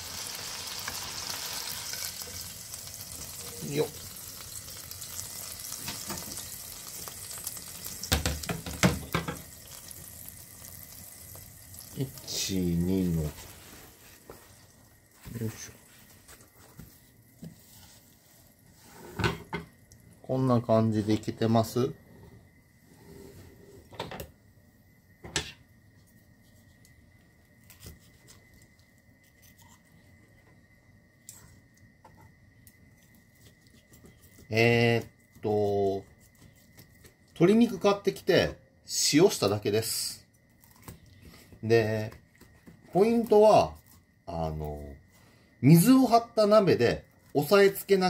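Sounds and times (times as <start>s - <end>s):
oil sizzling in frying pan: 0.0s - 16.6s.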